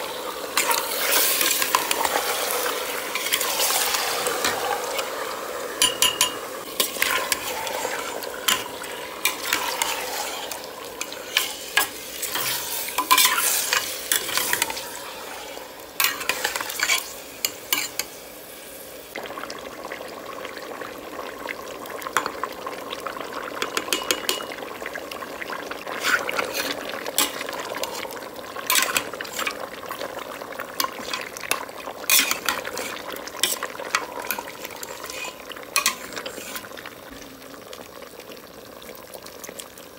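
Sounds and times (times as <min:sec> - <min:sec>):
meat sizzling in a pot: 0:00.0 - 0:39.9
metal spoon scraping a pot: 0:00.6 - 0:05.1, 0:05.8 - 0:14.9, 0:16.0 - 0:18.1, 0:25.9 - 0:28.0, 0:28.7 - 0:29.6, 0:30.8 - 0:36.7.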